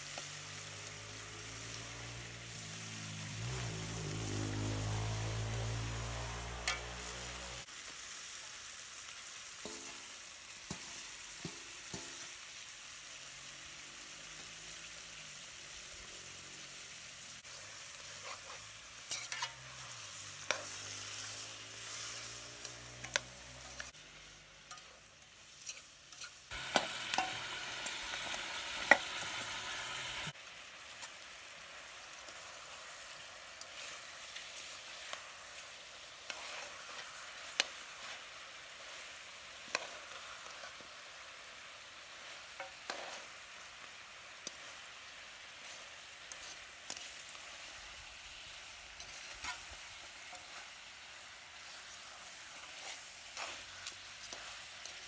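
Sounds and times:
meat sizzling in a pot: 0:00.0 - 0:55.0
spatula scraping metal pot: 0:18.2 - 0:19.8.

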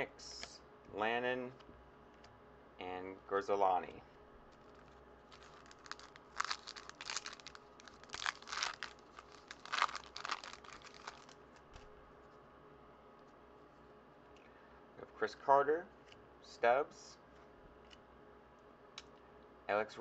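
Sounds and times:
foil wrapper tearing and crinkling: 0:04.6 - 0:11.4.

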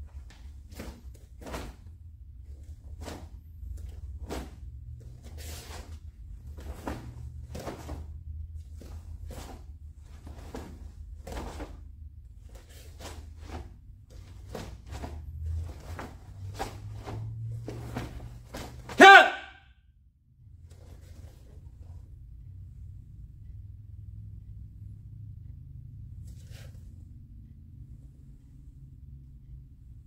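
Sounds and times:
low steady hum: 0:00.0 - 0:19.0, 0:19.6 - 0:30.0
uniform swishing and snapping: 0:00.1 - 0:19.0.

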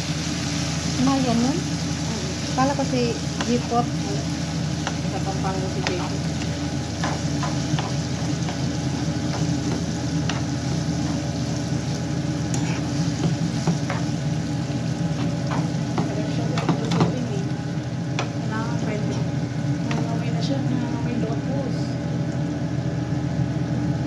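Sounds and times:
noodles sizzling in a pan: 0:00.0 - 0:24.0.

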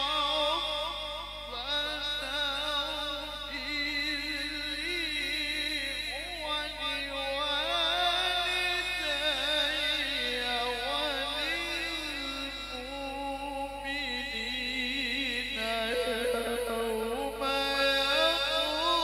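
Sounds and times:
man reciting melodically into microphone: 0:00.0 - 0:19.0.

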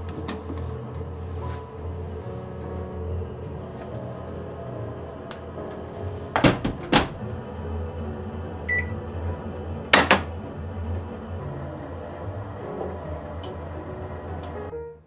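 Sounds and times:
washing machine door thudding: 0:06.4 - 0:07.2, 0:10.0 - 0:10.3
electronic beep: 0:08.7 - 0:08.9.

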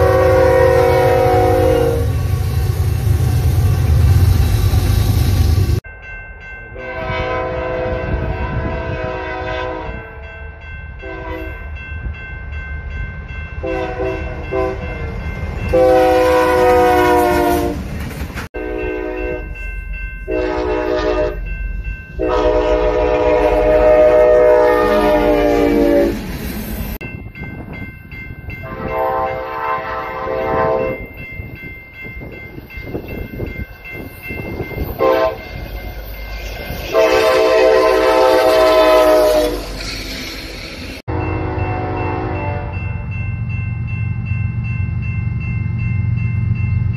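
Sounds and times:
locomotive air horn blasts: 0:00.0 - 0:02.4, 0:06.8 - 0:10.3, 0:11.0 - 0:11.5, 0:13.6 - 0:14.8, 0:15.7 - 0:17.8, 0:18.6 - 0:19.5, 0:20.3 - 0:21.4, 0:22.2 - 0:26.3, 0:28.6 - 0:31.0, 0:35.0 - 0:35.4, 0:36.9 - 0:39.7, 0:41.1 - 0:42.8
freight train rumble: 0:00.0 - 0:46.9
train cars clacking over rail joints: 0:17.3 - 0:18.5.

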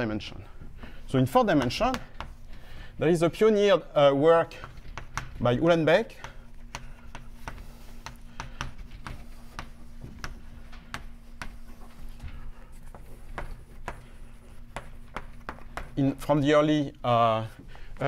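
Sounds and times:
chalk tapping and scraping on blackboard: 0:01.3 - 0:02.8, 0:04.5 - 0:16.4.

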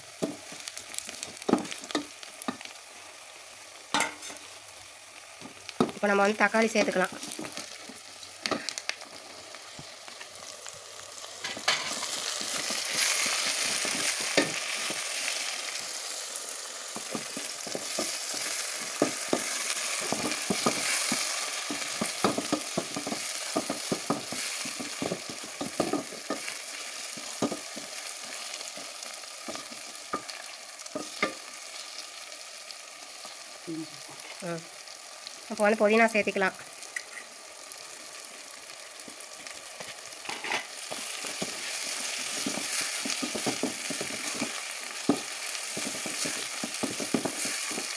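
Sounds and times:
food sizzling in oil: 0:00.0 - 0:47.9
spatula stirring and scraping pot: 0:17.0 - 0:31.8, 0:40.3 - 0:47.9.

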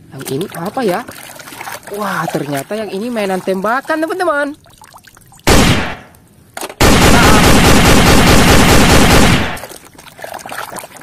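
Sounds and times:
water sloshing in plastic basin: 0:00.0 - 0:05.4, 0:09.6 - 0:11.0.

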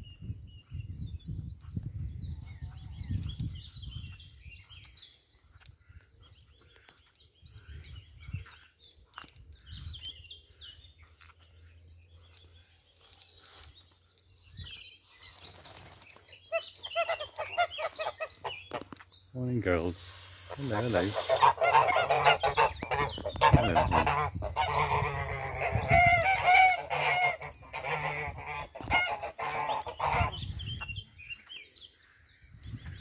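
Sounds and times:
songbirds chirping: 0:00.0 - 0:33.0
geese calling: 0:16.5 - 0:18.8, 0:19.7 - 0:30.4.

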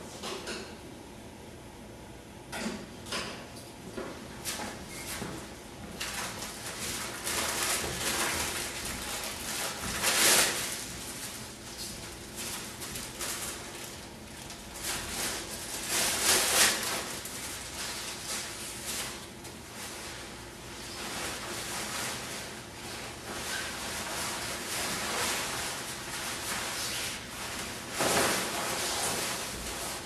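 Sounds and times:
coverall fabric rustling: 0:06.0 - 0:30.0
plastic packaging crinkling: 0:06.0 - 0:30.0.

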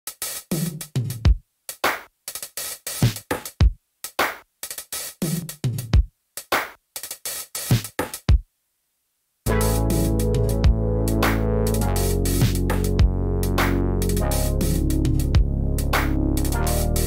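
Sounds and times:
electronic drum machine beat: 0:00.1 - 0:08.4, 0:09.5 - 0:17.0.

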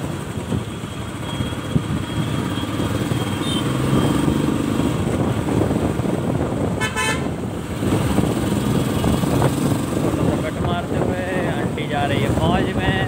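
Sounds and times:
vehicle horn honking: 0:03.3 - 0:03.8, 0:06.8 - 0:07.4.

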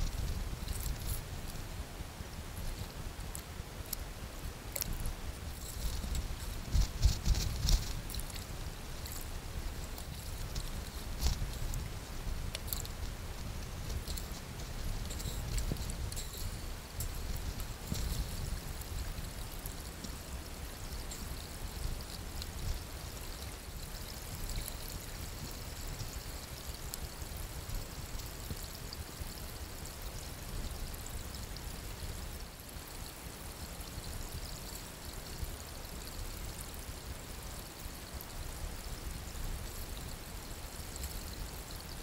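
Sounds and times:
creek water running: 0:00.0 - 0:42.0.

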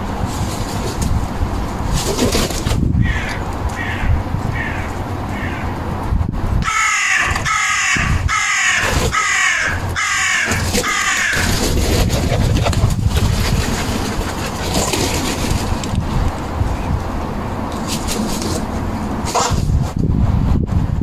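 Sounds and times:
steady low rumble: 0:02.6 - 0:06.7, 0:09.8 - 0:17.8
crow cawing: 0:03.0 - 0:05.8, 0:06.6 - 0:11.6.

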